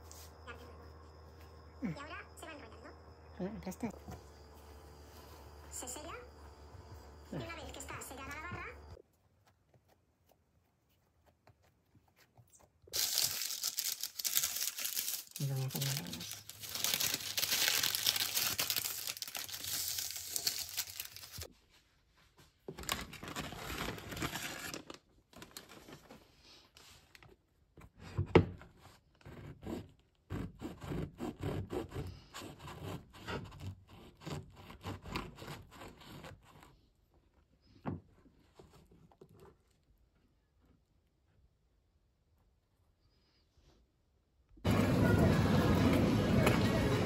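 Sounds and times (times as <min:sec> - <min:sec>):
parchment paper crinkling: 0:08.2 - 0:21.5, 0:22.7 - 0:26.3
bread knife sawing crusty bread: 0:28.7 - 0:36.9.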